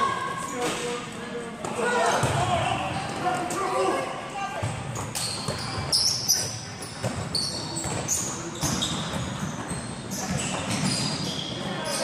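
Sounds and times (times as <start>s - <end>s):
sneakers squeaking on floor: 4.6s - 12.0s
basketball bouncing: 7.0s - 11.0s.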